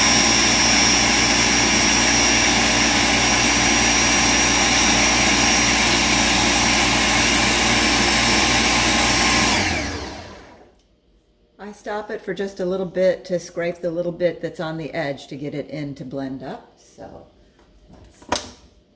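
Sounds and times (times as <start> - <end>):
blender grinding: 0.0 - 10.7
blender motor winding down: 0.0 - 10.7.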